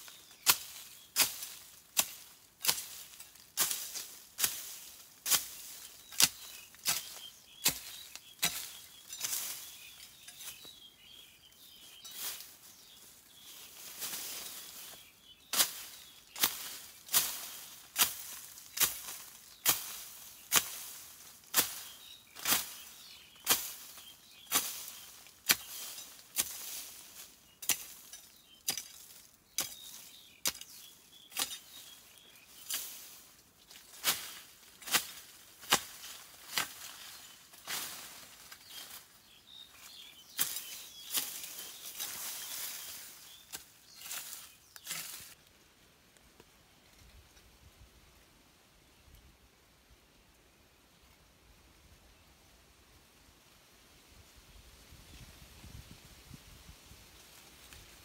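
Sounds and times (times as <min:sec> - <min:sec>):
rustling: 0:00.0 - 0:45.5.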